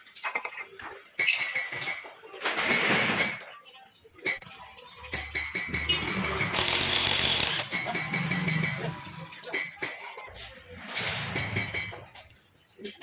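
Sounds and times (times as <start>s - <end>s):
impact wrench running: 6.3s - 7.7s.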